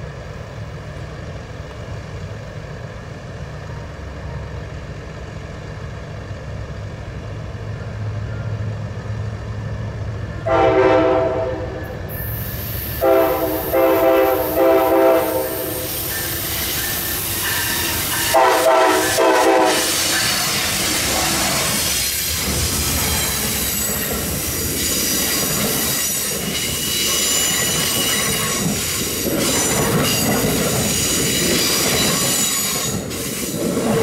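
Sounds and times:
train horn blasts: 10.4s - 12.0s, 13.0s - 16.0s, 18.2s - 20.0s
high-pitched wheel squeal: 15.4s - 18.4s, 23.0s - 30.4s, 31.0s - 33.4s.

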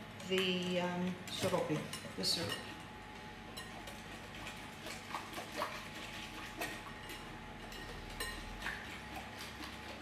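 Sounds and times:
whisk clinking against glass bowl: 6.6s - 9.1s.

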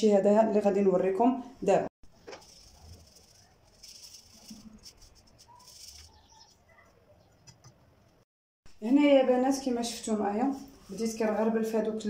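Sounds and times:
sieve swishing and rattling: 2.1s - 6.4s.

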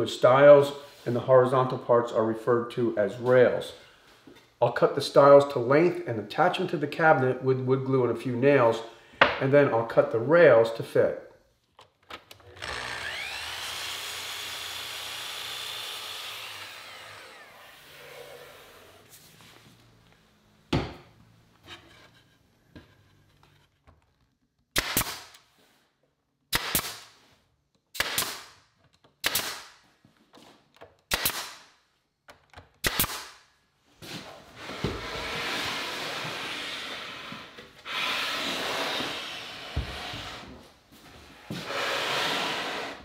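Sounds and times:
power saw whining: 12.4s - 19.1s
pneumatic nailer firing: 24.8s - 25.4s, 26.5s - 27.1s, 27.9s - 28.6s, 29.2s - 29.8s, 31.1s - 31.7s, 32.8s - 33.4s.

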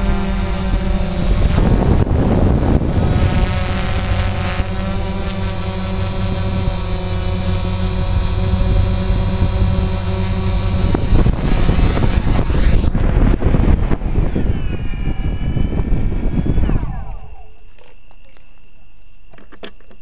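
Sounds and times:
drone motors and propellers humming: 0.0s - 20.0s.

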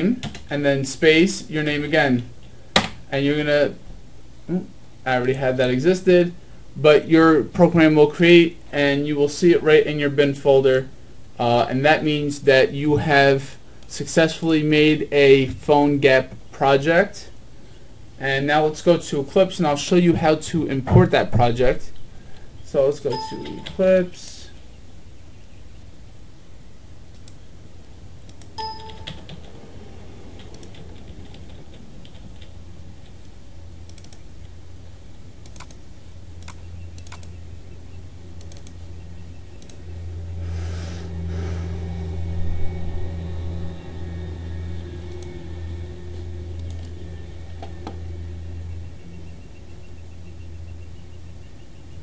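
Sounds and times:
low hum: 0.0s - 52.0s
keyboard clicks: 23.1s - 23.8s, 33.9s - 34.2s, 35.4s - 35.8s, 36.4s - 37.3s, 38.4s - 38.8s
computer mouse clicks: 27.1s - 27.4s, 33.9s - 34.2s, 35.4s - 35.8s, 36.4s - 37.4s, 38.4s - 38.8s.

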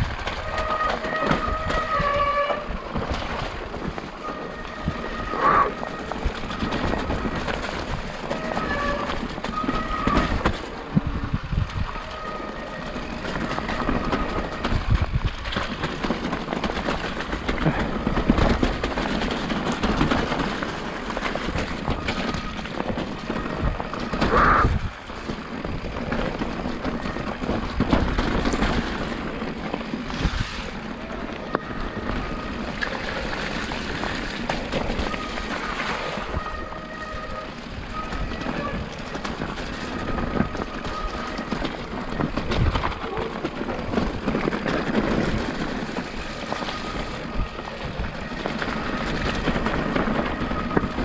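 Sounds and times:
bike tyre and rattling noise: 0.0s - 51.0s.

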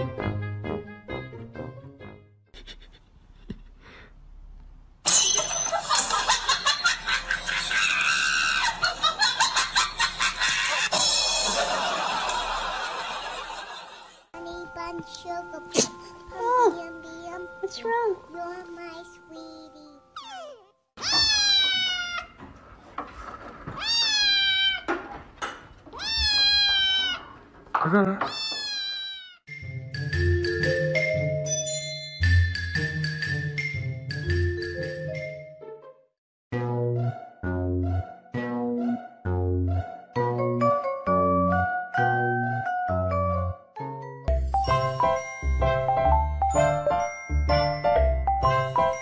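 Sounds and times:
kitten meowing: 20.2s - 22.4s, 23.8s - 24.9s, 25.9s - 27.3s, 28.3s - 29.4s.

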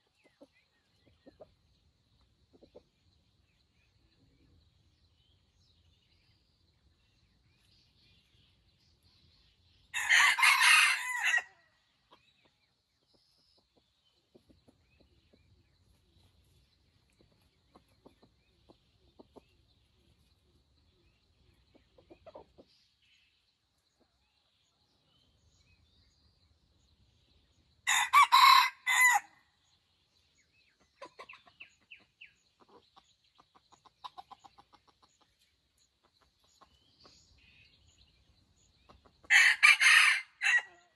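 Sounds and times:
soft clucking: 0.0s - 1.6s, 2.5s - 3.0s, 17.0s - 20.1s, 21.6s - 22.8s, 30.8s - 35.4s
rooster crowing: 10.0s - 11.6s, 27.9s - 29.3s, 39.3s - 40.8s.

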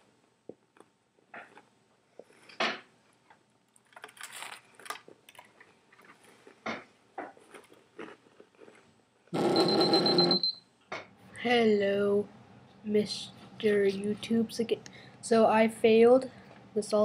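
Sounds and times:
person chewing crackers: 3.6s - 9.4s.

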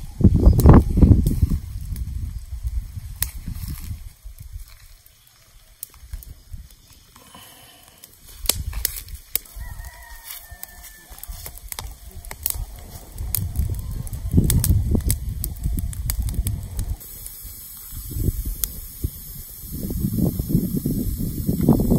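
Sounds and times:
rooster crowing: 9.5s - 11.6s.

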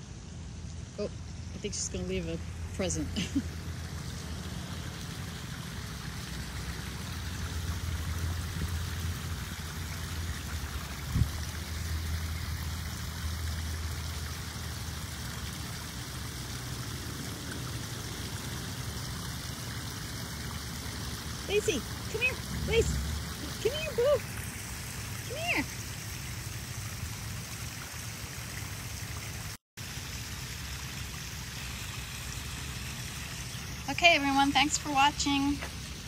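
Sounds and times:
waterfall splashing into pond: 1.7s - 36.0s
low rumble: 22.0s - 25.1s.

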